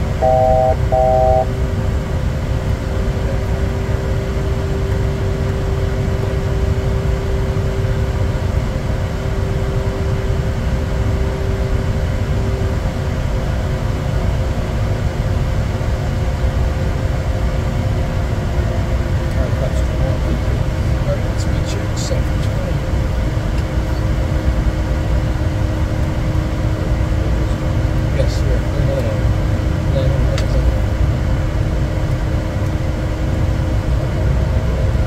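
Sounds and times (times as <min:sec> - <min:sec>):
faint steady tones: 0:00.0 - 0:01.5
jet cockpit air rush and rumble: 0:00.0 - 0:35.0.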